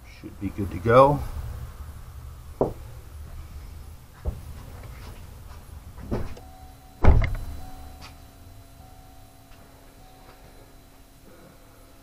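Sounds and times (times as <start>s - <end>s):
faint steady hum: 0.0s - 12.0s
thump: 6.0s - 6.4s, 7.0s - 7.5s.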